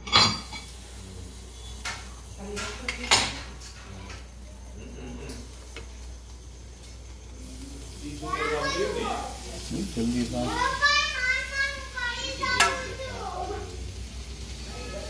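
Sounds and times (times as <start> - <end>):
metal tongs and plate clattering: 0.0 - 0.8
faint voices murmuring: 0.7 - 15.0.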